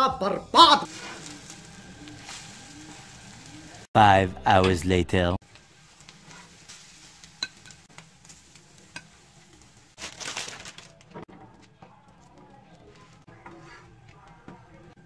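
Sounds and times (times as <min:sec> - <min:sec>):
faint sizzle: 0:00.6 - 0:03.9, 0:05.4 - 0:15.0
metal spatula scraping griddle: 0:00.9 - 0:03.6, 0:06.0 - 0:10.0, 0:12.2 - 0:14.8.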